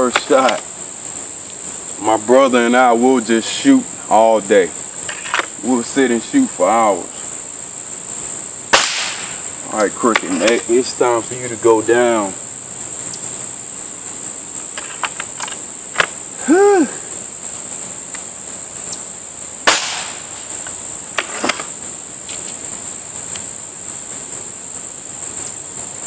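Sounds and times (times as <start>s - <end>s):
crickets buzzing: 0.0s - 26.0s
air rifle shot: 8.7s - 9.4s, 19.6s - 20.3s.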